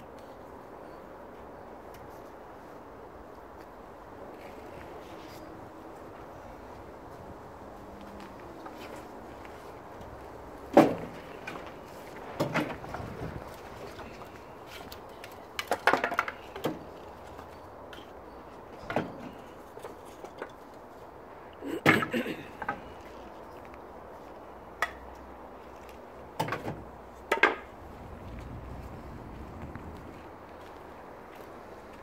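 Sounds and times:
wooden kindling knocking and clattering: 10.7 - 16.9.

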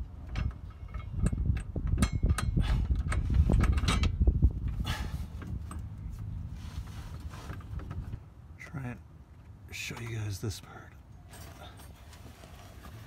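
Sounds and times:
metal hardware clicking and scraping: 0.2 - 6.3.

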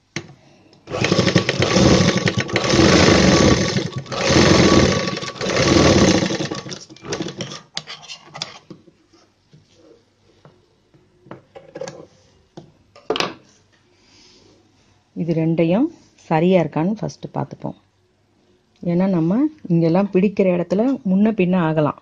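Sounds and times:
sewing machine stitching: 0.9 - 7.6.

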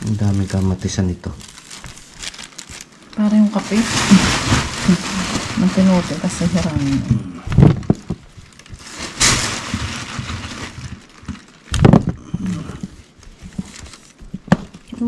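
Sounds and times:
rustling of bags and boxes: 0.0 - 15.0.

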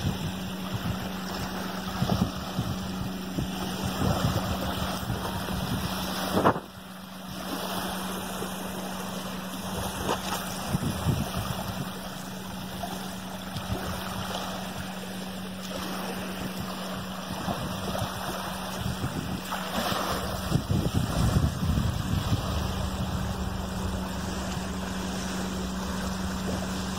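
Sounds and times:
small waves lapping: 0.0 - 26.9
steady low hum: 0.0 - 26.9
wind buffeting microphone: 0.0 - 26.9.

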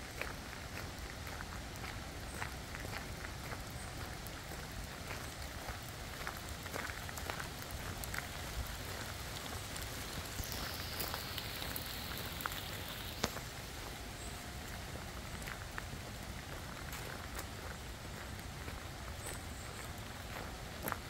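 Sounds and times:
rain on leaves: 0.1 - 21.0
close water drips: 9.2 - 13.4.

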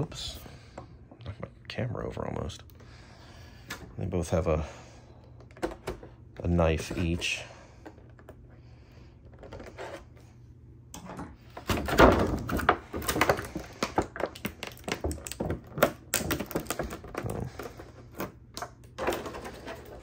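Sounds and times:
plastic blister tray crinkling: 12.4 - 20.0.

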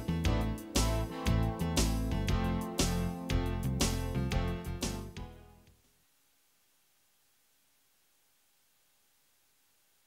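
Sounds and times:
faint hiss: 5.6 - 10.0.

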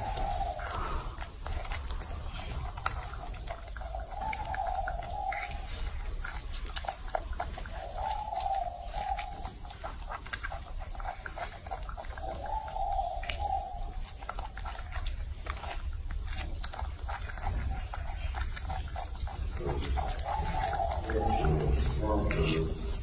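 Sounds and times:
monkey chewing with wet clicks: 0.0 - 23.0.

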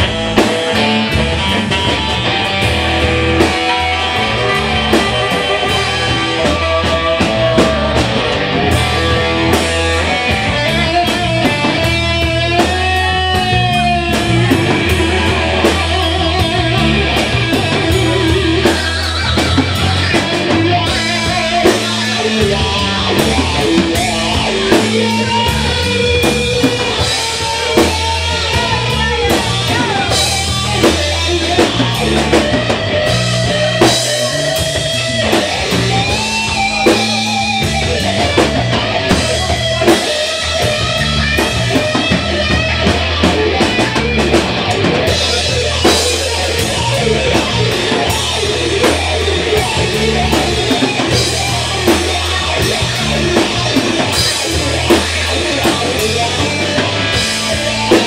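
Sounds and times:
blues rock band playing: 0.0 - 58.0
lead guitar bending notes: 0.0 - 58.0.

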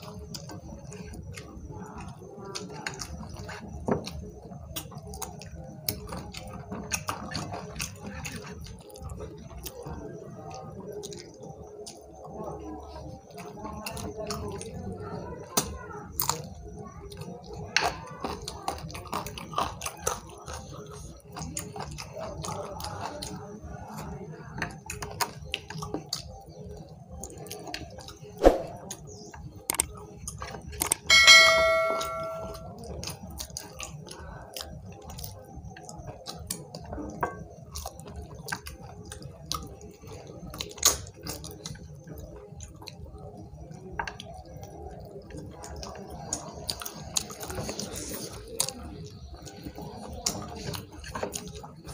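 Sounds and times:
people chewing and lip smacking: 0.0 - 31.5, 32.4 - 51.9
short bright chime: 31.1 - 32.7.

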